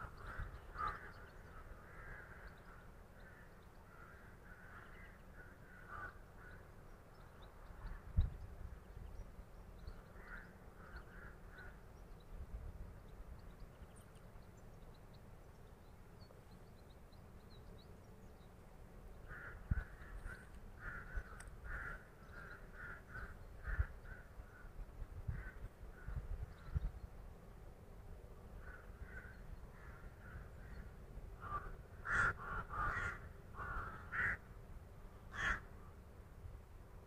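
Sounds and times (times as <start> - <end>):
crows cawing: 0.0 - 6.7, 10.1 - 11.8, 19.2 - 26.2, 28.6 - 34.5, 35.2 - 35.9.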